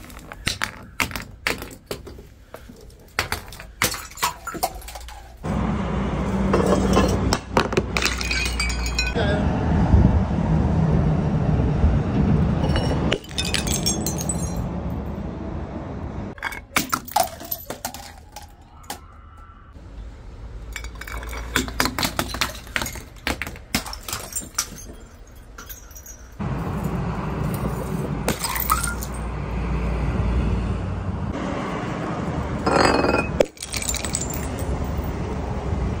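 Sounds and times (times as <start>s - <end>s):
glass bottles smashing on stone: 3.1s - 5.4s, 6.6s - 9.2s, 12.6s - 14.7s, 16.4s - 19.0s, 20.7s - 26.4s, 27.8s - 29.2s, 32.7s - 35.1s
glass shards clinking: 3.4s - 5.4s, 8.0s - 9.2s, 12.6s - 14.6s, 16.4s - 18.5s, 20.7s - 26.4s, 27.4s - 29.2s, 32.7s - 35.0s.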